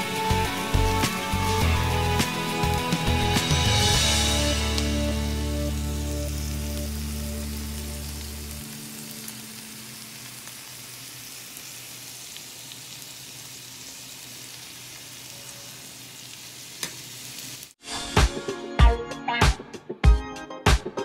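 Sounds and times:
background music: 0.0 - 9.6, 17.8 - 21.0
food sizzling in a hot pan: 0.0 - 17.8.

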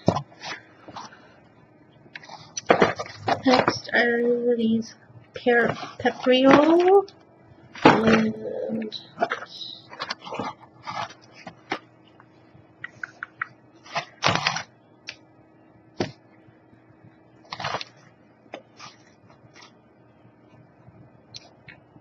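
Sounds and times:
plastic packaging crinkling: 9.1 - 11.9, 17.4 - 18.0.

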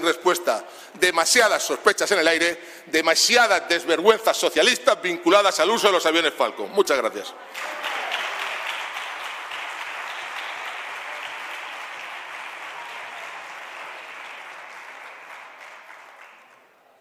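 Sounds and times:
audience applause: 7.5 - 16.8.

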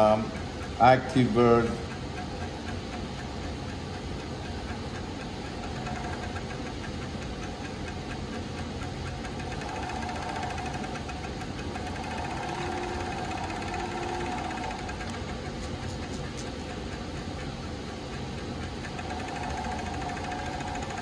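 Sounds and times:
sewing machine running: 5.5 - 6.7, 9.2 - 15.6, 18.8 - 21.0
sewing machine whine: 5.6 - 6.7, 9.3 - 15.4, 18.8 - 21.0.

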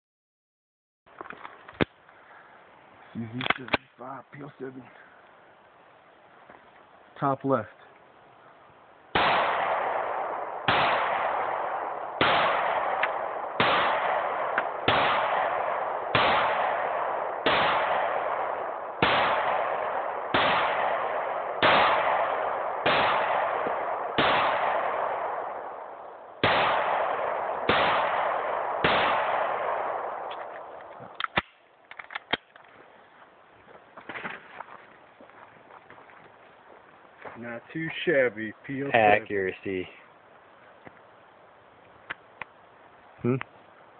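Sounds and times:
pistol shots: 9.1 - 31.6.

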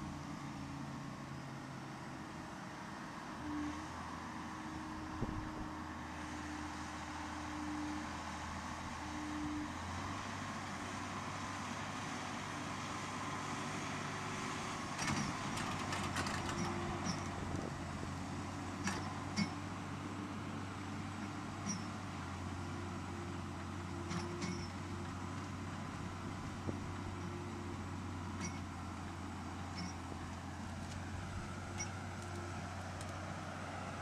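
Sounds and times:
tractor diesel engine under load: 0.0 - 34.0.

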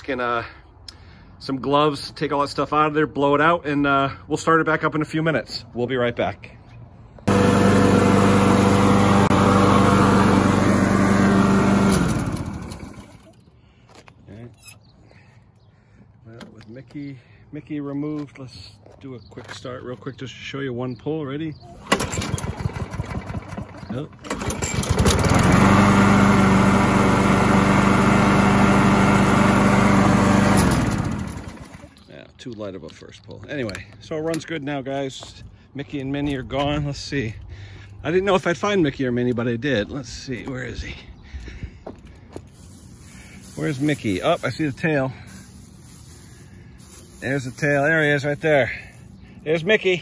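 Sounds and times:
lawn mower engine running: 7.3 - 13.4, 21.7 - 32.0, 42.5 - 50.0.

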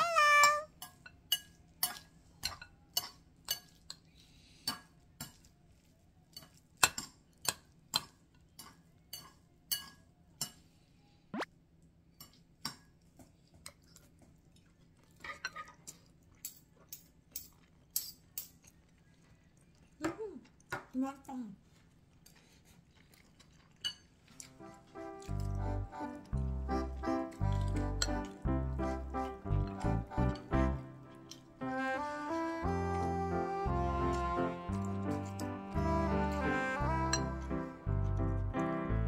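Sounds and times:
spoon and chopsticks clinking on bowl: 0.4 - 4.0, 6.3 - 10.6.

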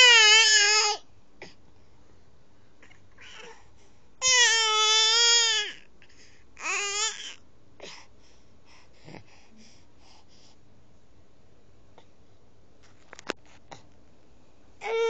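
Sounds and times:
baby fussy whining: 2.8 - 3.6, 6.6 - 8.0, 14.8 - 15.0.

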